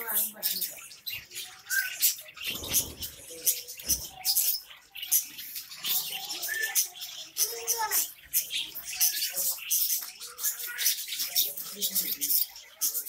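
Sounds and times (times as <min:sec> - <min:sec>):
budgerigars chirping: 0:00.0 - 0:13.0
bird whistles: 0:01.5 - 0:02.9, 0:06.3 - 0:06.9.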